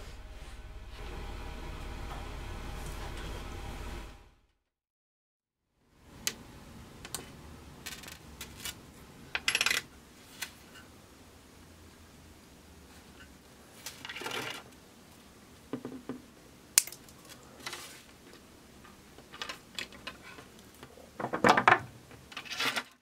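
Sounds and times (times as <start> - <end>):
wire clicks and scrapes: 7.9 - 8.8.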